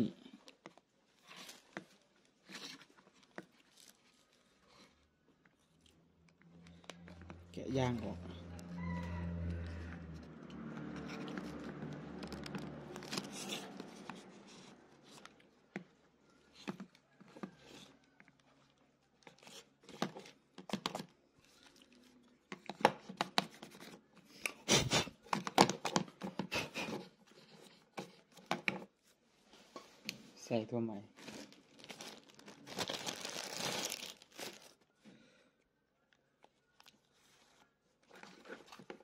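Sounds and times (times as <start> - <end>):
ear pad rubbing and crinkling: 9.2 - 15.5, 31.1 - 34.8.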